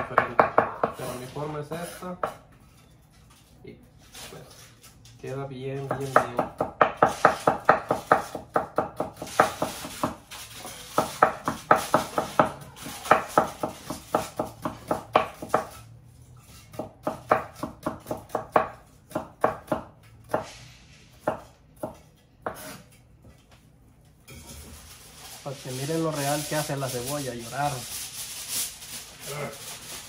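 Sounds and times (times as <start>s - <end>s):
knife chopping onion on wooden board: 0.0s - 1.2s, 5.8s - 15.8s, 16.5s - 20.5s, 21.2s - 22.9s.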